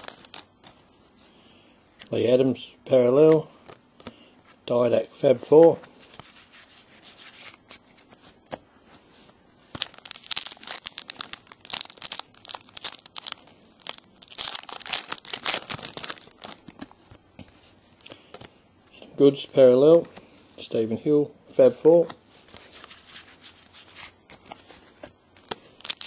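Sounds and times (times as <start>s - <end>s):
wrapper tearing and crinkling: 0.0s - 0.8s, 9.7s - 16.9s, 25.4s - 26.0s.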